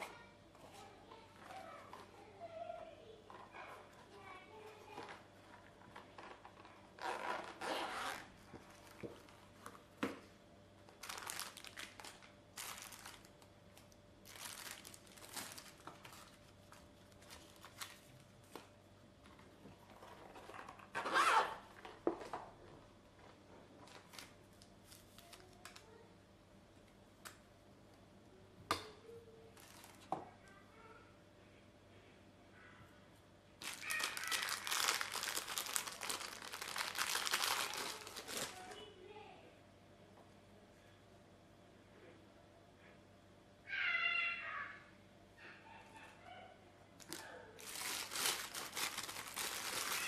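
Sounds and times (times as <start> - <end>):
zipper unzipping: 7.0 - 8.4, 20.9 - 21.7
plastic bags crinkling: 10.9 - 18.6, 29.6 - 30.2, 33.6 - 38.8, 47.0 - 50.0.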